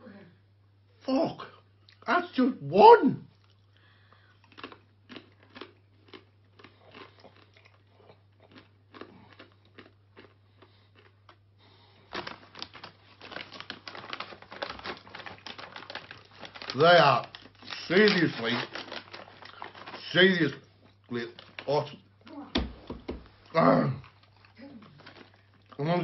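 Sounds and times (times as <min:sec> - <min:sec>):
chip crunching in mouth: 0:03.4 - 0:22.0, 0:24.0 - 0:26.0
foil bag crinkling: 0:12.0 - 0:22.0, 0:24.2 - 0:26.0.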